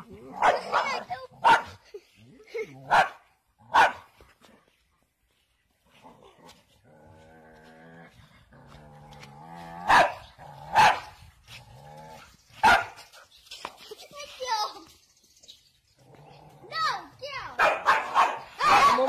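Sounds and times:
dog barking: 0.4 - 1.8, 2.9 - 4.1, 9.8 - 11.2, 12.6 - 13.0, 17.5 - 19.0
dog growling: 6.0 - 10.8.

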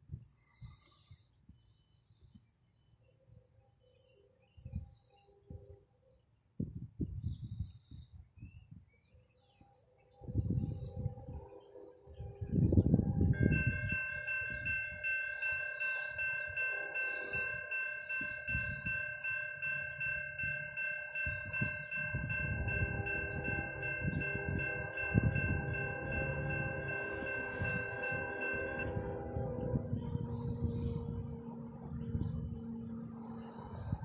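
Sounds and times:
wind buffeting microphone: 6.6 - 9.1, 10.1 - 34.0
crossing bell ringing: 11.0 - 34.0.

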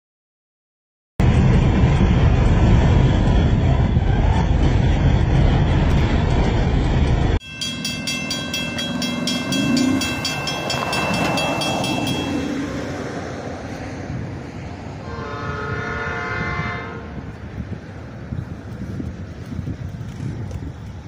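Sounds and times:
freight train rumbling over bridge: 1.2 - 21.0
railroad crossing bell ringing: 7.4 - 13.4.

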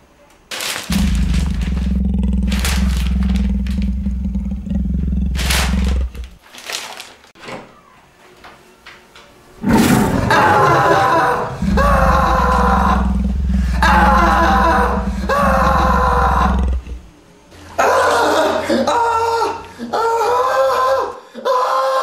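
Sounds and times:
newspaper rustling: 0.5 - 3.9, 5.4 - 7.4
deep tiger growl: 0.9 - 6.4, 9.6 - 17.2.

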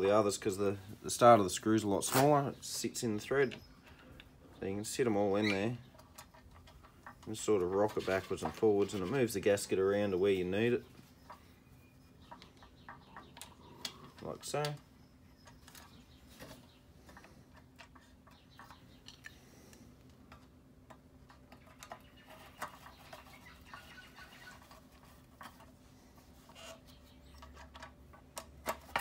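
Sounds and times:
small screws clicking and scraping: 17.0 - 23.2.

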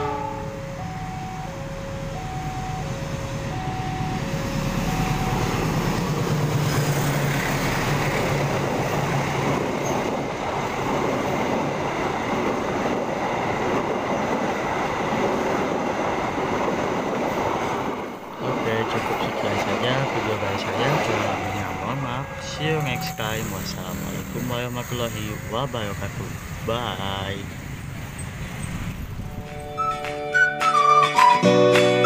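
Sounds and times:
level crossing alarm two tones: 0.0 - 6.0, 20.9 - 23.6
locomotive engine hum: 0.0 - 31.3
train wheels rolling on rails: 1.9 - 30.5.

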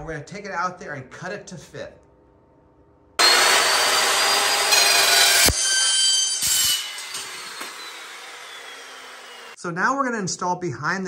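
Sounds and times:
chop saw cutting steel: 3.2 - 9.6.

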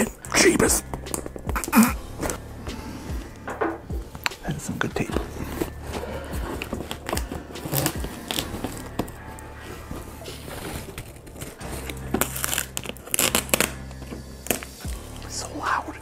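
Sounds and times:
packing tape peeling off cardboard: 5.0 - 15.3.

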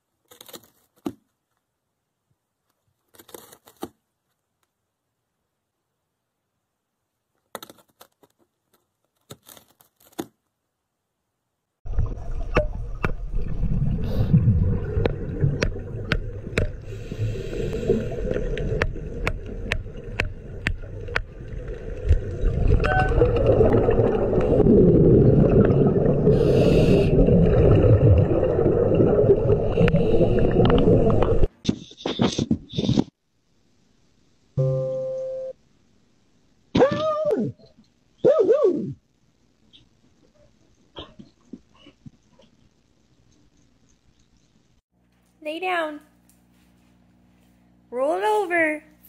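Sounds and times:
underwater rumble and bubbles: 11.8 - 31.5.

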